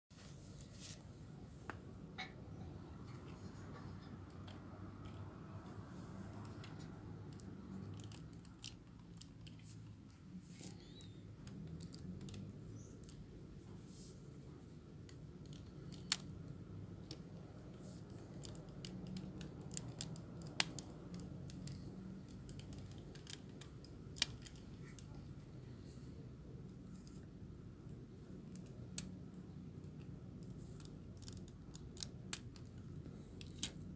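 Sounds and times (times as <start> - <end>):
plastic toy clicking: 17.0 - 25.1.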